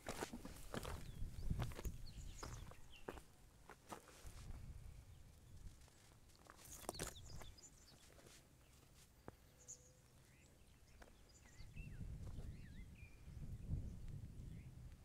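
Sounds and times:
crunching footsteps: 0.0s - 4.6s, 5.5s - 9.4s.

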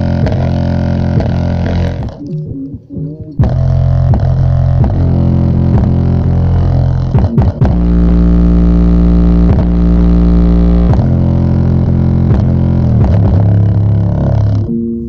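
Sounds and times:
bass-boosted music through speaker: 0.0s - 15.0s.

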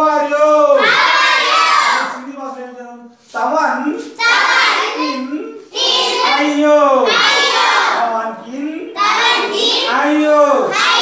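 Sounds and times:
children reciting in unison: 0.7s - 2.6s, 4.0s - 8.1s, 8.9s - 11.0s.

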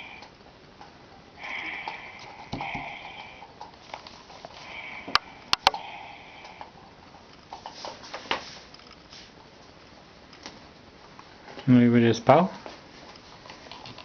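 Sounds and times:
sharp clicks: 5.1s - 5.8s.

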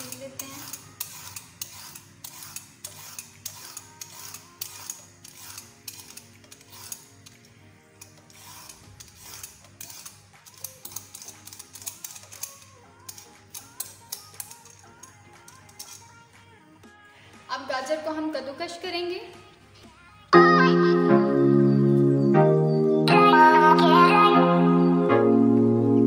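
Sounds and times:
peeler scraping carrot: 0.0s - 7.4s, 8.0s - 16.2s
soft background music: 0.0s - 26.0s.

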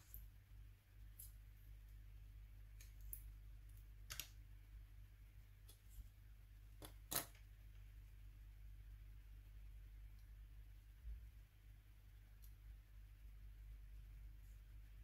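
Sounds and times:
low steady hum: 0.0s - 15.0s
small parts clicking and tapping: 2.8s - 4.4s.

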